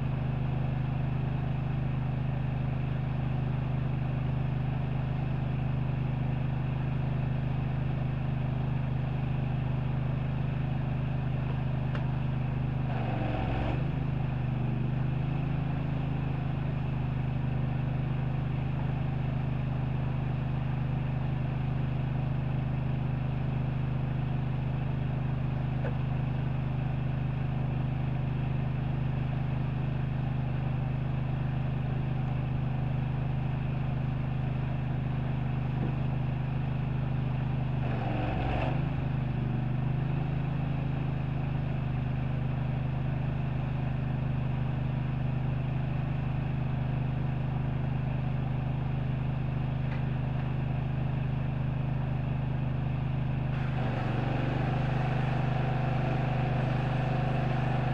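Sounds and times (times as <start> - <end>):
pressure washer engine running: 53.5 - 57.9.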